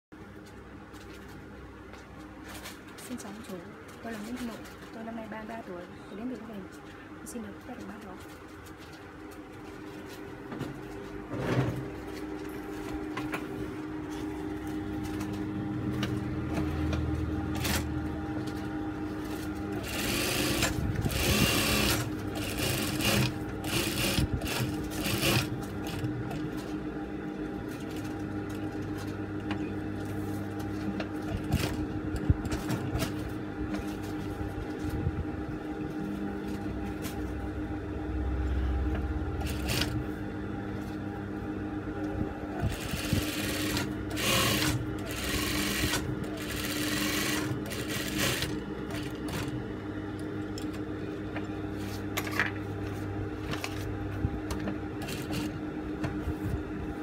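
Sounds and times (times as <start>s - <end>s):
sewing machine running: 15.0s - 29.1s, 30.0s - 34.8s, 38.9s - 40.2s, 42.5s - 49.6s, 54.9s - 55.6s.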